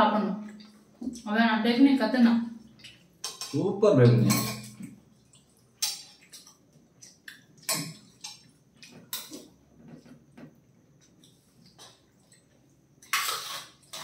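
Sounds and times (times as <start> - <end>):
cutlery tapping and scraping on plates: 3.2 - 3.6, 4.2 - 4.9, 7.6 - 10.2.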